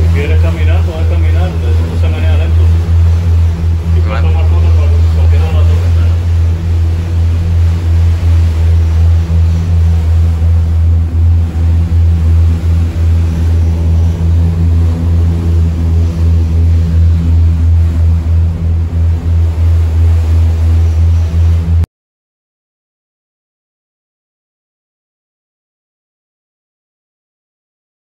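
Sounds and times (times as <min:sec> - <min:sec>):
ferry engines droning: 0:00.0 - 0:21.8.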